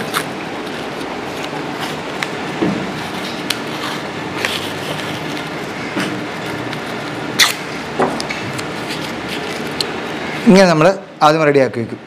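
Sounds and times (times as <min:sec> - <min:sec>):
paper rustling: 0:00.0 - 0:07.2, 0:08.3 - 0:09.8
room hum: 0:00.0 - 0:12.0.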